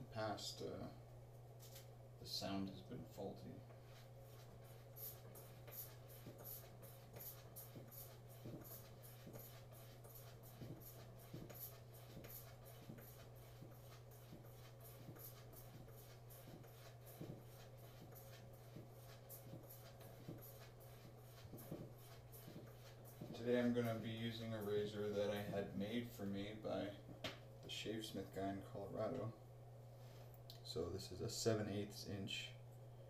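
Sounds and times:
low steady hum: 0:00.0 - 0:33.0
razor stropping strokes: 0:03.7 - 0:25.6.

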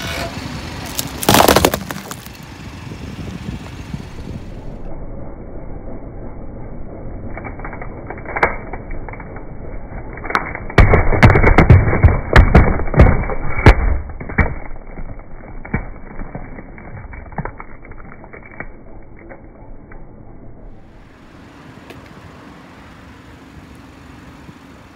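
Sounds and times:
car tyre rumbling: 0:00.0 - 0:04.9, 0:07.2 - 0:24.9
pumpkin cracking and crunching: 0:00.8 - 0:02.4, 0:10.1 - 0:19.4.

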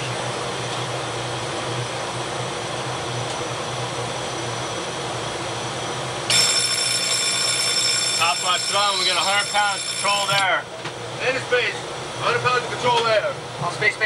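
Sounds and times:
engine room machinery noise: 0:00.0 - 0:14.0
loud alarm buzzer: 0:06.3 - 0:10.6.

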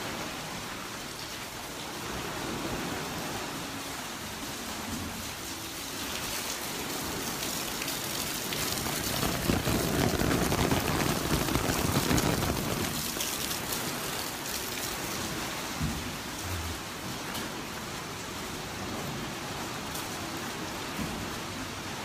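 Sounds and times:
rain hissing: 0:00.0 - 0:17.8.

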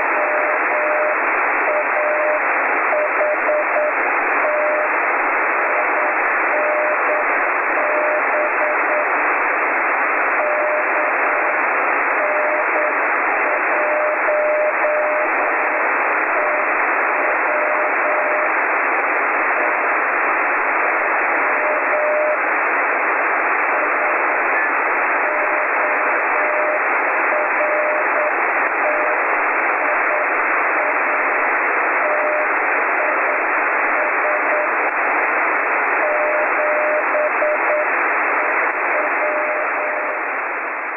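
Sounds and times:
morse code tone: 0:00.0 - 0:04.9, 0:05.6 - 0:09.1, 0:10.4 - 0:11.5, 0:12.2 - 0:15.8, 0:16.4 - 0:18.5, 0:21.5 - 0:22.4, 0:25.2 - 0:29.2, 0:32.0 - 0:33.4, 0:34.0 - 0:34.8, 0:36.0 - 0:40.2
radio band hiss: 0:00.0 - 0:40.9.

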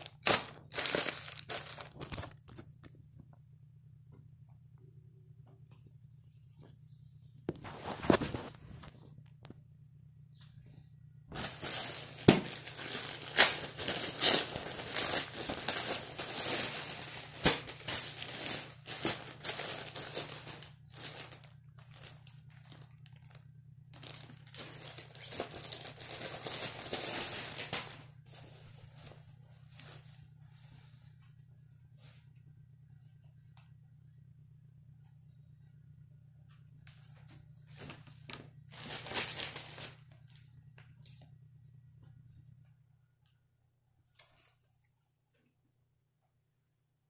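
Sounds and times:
plastic packaging bag crinkling: 0:00.0 - 0:02.9, 0:11.3 - 0:30.2, 0:37.8 - 0:40.1.

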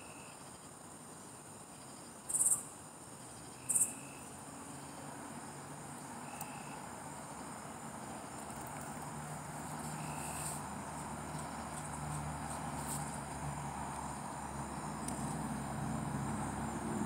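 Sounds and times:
crickets chirring: 0:00.0 - 0:17.0
short buzzy insect calls: 0:01.7 - 0:02.7, 0:03.4 - 0:04.4, 0:06.2 - 0:06.9, 0:09.8 - 0:10.7
distant traffic hum: 0:01.8 - 0:17.0.

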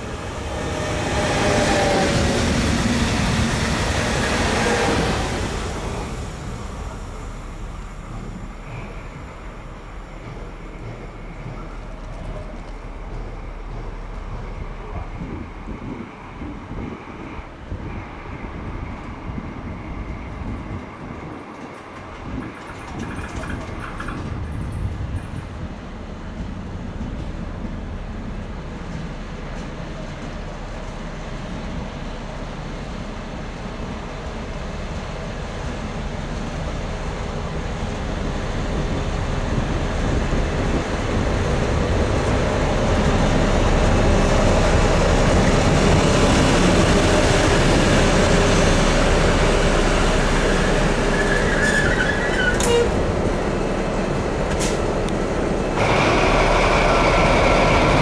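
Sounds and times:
diesel locomotive engine: 0:00.0 - 0:58.0
wheel squeal: 0:50.5 - 0:53.0.

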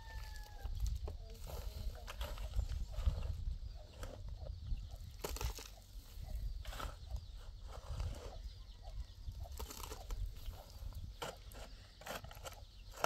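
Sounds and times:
wind on microphone: 0:00.0 - 0:11.3
hoe striking stony ground: 0:11.1 - 0:13.0.

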